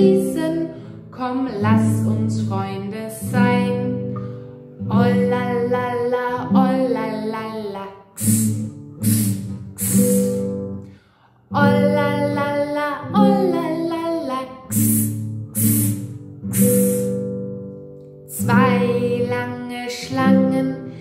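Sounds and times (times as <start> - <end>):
strummed acoustic guitar: 0.0 - 21.0
person singing: 4.9 - 10.6, 11.5 - 17.3, 18.3 - 21.0.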